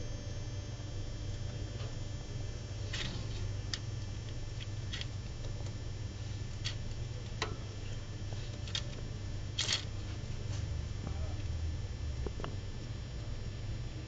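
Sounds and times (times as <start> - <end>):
steady low hum: 0.0 - 14.0
hamster clicks and scratches: 2.8 - 5.8, 6.4 - 9.9.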